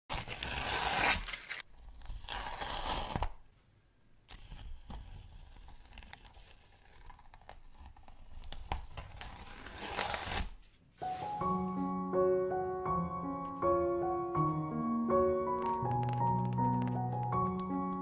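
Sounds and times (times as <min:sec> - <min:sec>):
paper tearing rips: 0:00.1 - 0:03.4, 0:05.5 - 0:10.6.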